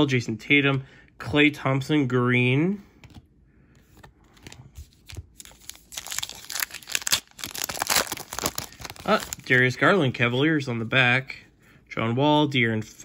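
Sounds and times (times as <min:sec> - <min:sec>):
plastic wrapper crinkling: 0:04.9 - 0:10.0.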